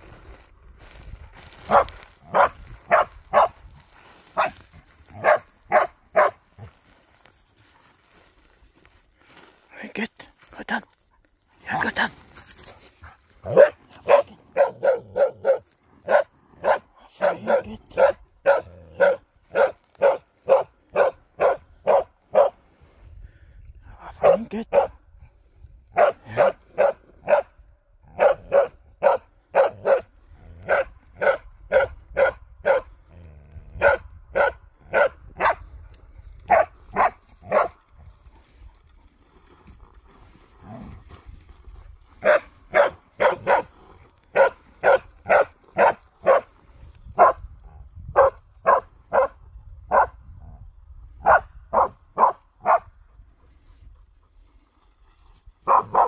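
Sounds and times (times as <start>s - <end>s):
dog barking: 1.7s - 3.6s, 4.4s - 4.6s, 5.2s - 6.4s, 13.0s - 22.6s, 24.2s - 25.0s, 25.9s - 32.9s, 33.8s - 35.6s, 36.5s - 37.8s, 42.2s - 43.7s, 44.3s - 46.5s, 47.2s - 47.4s, 48.2s - 50.2s, 51.2s - 52.9s, 55.6s - 56.0s.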